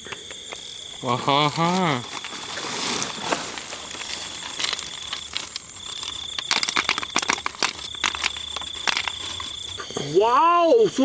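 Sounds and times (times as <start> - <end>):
insects trilling: 0.0 - 11.0
sharp crackling clicks: 3.9 - 9.7.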